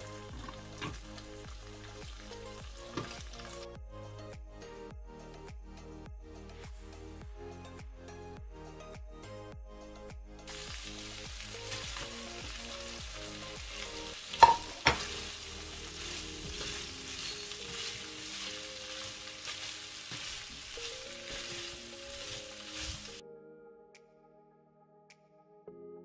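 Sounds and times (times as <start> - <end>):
food sizzling in a frying pan: 0.0 - 3.7, 10.5 - 23.2.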